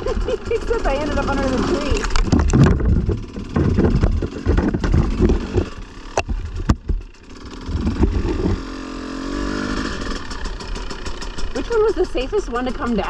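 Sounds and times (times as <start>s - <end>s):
dirt bike engine running: 0.0s - 13.0s
knocks: 2.1s - 7.1s.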